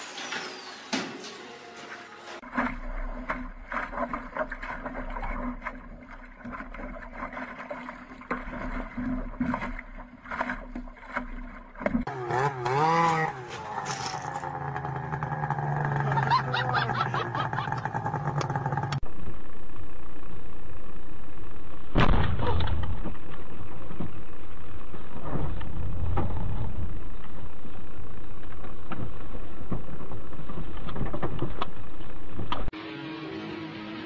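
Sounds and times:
quad bike engine running: 11.9 - 21.6
steady rumbling noise: 13.3 - 32.8.

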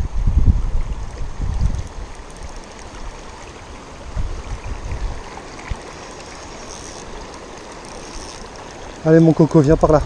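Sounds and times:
wind buffeting microphone: 0.0 - 3.2, 3.9 - 5.9
river water lapping: 0.6 - 10.0.

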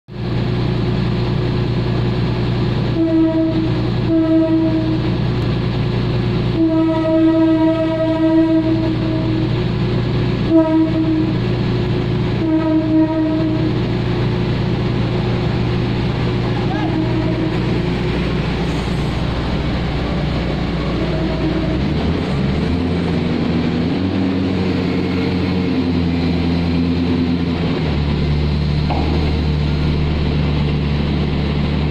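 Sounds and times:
low engine rumble: 0.1 - 31.9
train horn blasts: 2.9 - 5.2, 6.5 - 9.6, 10.4 - 11.6, 12.3 - 13.9, 16.2 - 22.4.

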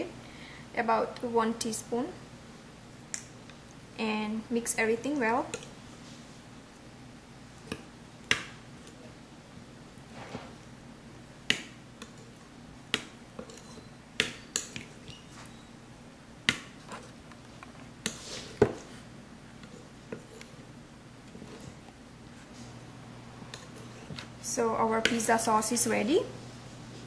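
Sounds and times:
spoon scraping bowl: 13.4 - 15.7, 19.6 - 20.6.

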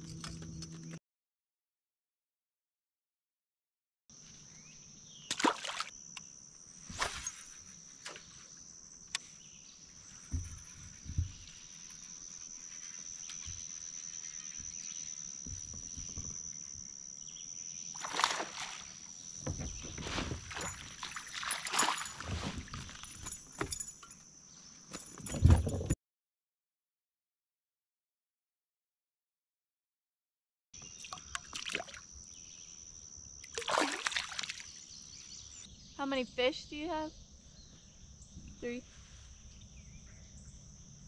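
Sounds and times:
paddle knocks and splashes: 18.0 - 23.0, 33.6 - 34.6.

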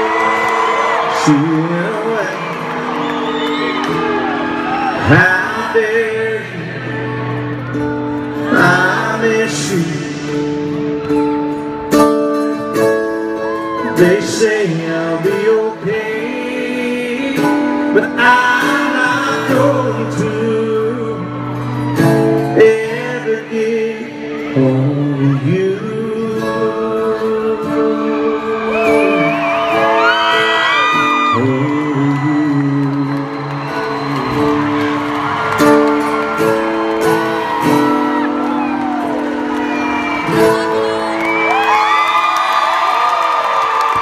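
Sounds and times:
man singing: 1.0 - 2.8, 4.6 - 7.6, 8.2 - 11.1, 13.6 - 35.1
strummed acoustic guitar: 1.2 - 41.3.

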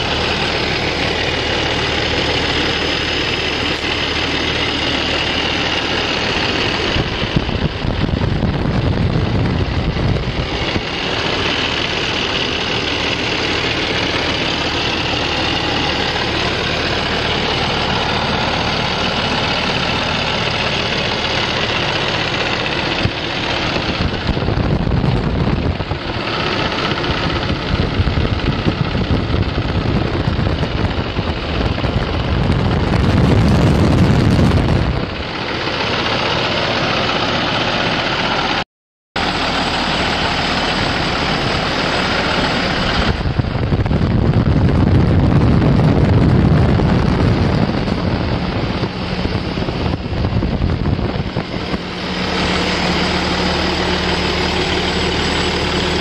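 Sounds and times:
diesel truck idling: 0.0 - 38.6, 39.2 - 56.0.

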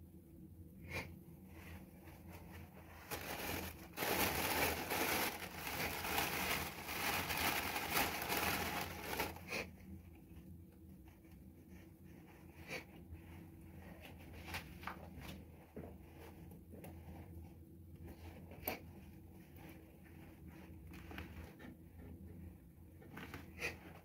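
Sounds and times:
faint scratching and clicks: 1.5 - 24.0
plastic bag crinkling: 2.9 - 9.6.

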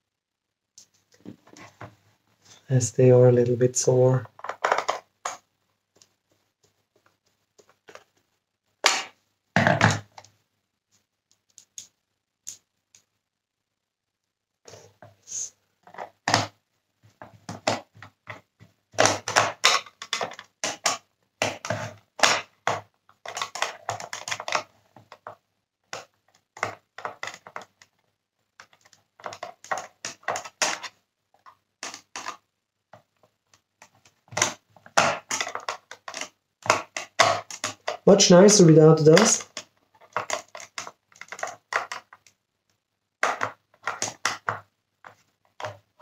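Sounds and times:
plastic parts clicking and rattling: 4.2 - 6.2, 7.6 - 8.2, 15.8 - 16.5, 17.2 - 42.4, 43.2 - 46.0.

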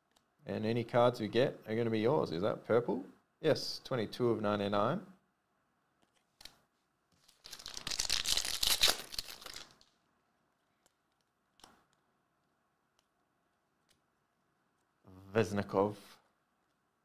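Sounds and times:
foil pack tearing and crinkling: 7.3 - 9.8.

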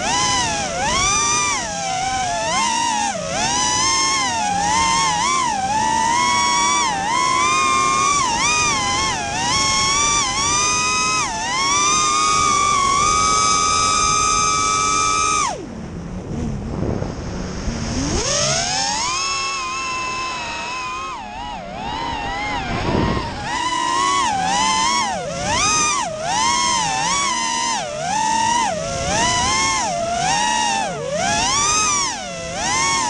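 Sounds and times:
drone motors whining: 0.0 - 33.0
rush of air: 16.1 - 18.9.

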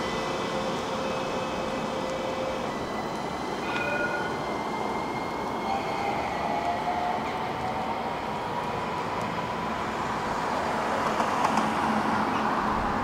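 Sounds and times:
faint high whining tones: 0.0 - 7.4
tram wheels rumbling on rails: 0.0 - 13.0.

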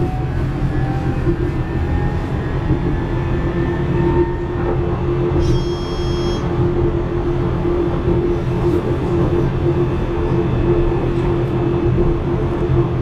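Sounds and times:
tram wheels rumbling on rail: 0.0 - 13.0
high ringing squeal: 5.4 - 6.6.

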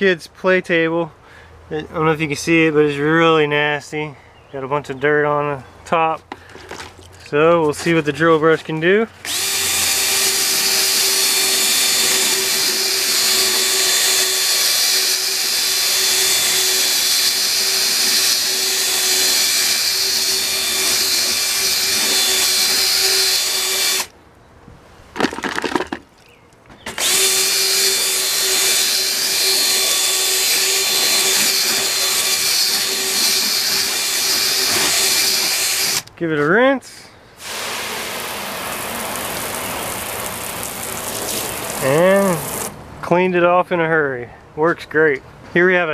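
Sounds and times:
cordless drill motor whine: 9.2 - 24.1, 26.9 - 36.1.

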